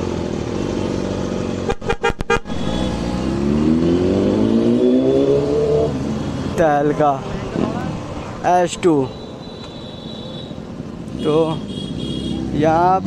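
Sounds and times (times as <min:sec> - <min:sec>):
motorcycle engine accelerating: 0:00.0 - 0:06.0.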